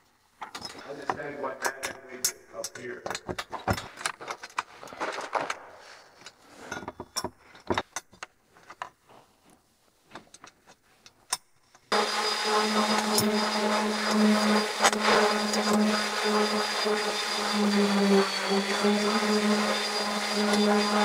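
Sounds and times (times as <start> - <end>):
steady mechanical hum: 11.9 - 21.0.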